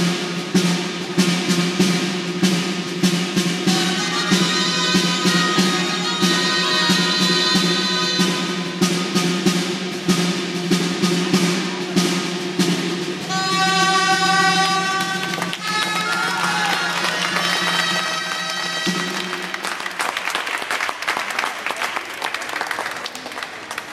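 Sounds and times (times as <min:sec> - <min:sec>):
shawm melody: 0:00.0 - 0:20.0
steady drum beat: 0:00.0 - 0:20.1
crowd applause: 0:14.1 - 0:23.9.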